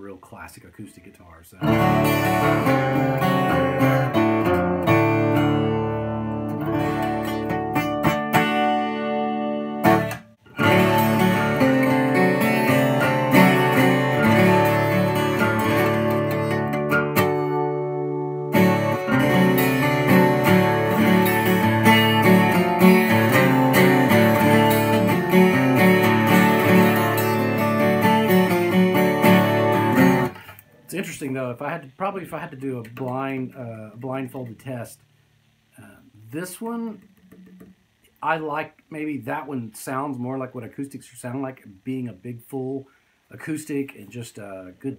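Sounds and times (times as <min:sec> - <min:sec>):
twelve-string acoustic guitar strumming: 0:00.8 - 0:34.9.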